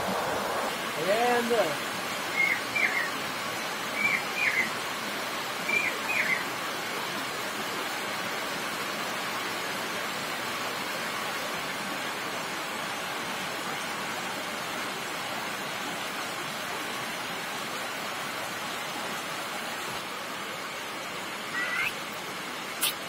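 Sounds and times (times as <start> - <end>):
heavy rain falling: 0.0 - 7.4
bird chirping: 2.3 - 3.1, 4.0 - 4.7, 5.7 - 6.4, 21.5 - 22.0.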